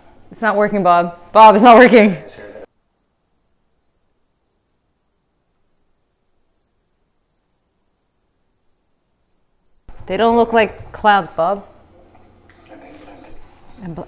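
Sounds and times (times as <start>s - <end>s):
crickets chirping: 2.7s - 9.9s.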